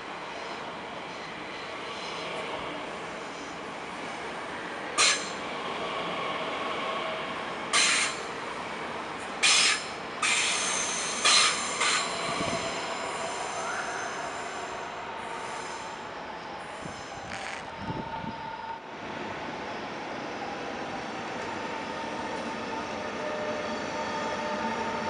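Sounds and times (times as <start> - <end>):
train running noise: 0.0 - 25.0
train wheels squealing: 4.6 - 5.4, 7.8 - 8.4, 9.4 - 18.8, 19.6 - 25.0.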